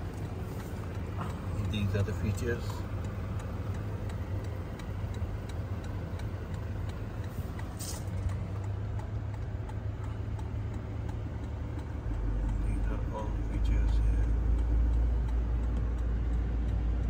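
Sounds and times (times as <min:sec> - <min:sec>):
diesel engine idling: 0:00.0 - 0:17.0
hazard-light flasher ticking: 0:00.1 - 0:17.0.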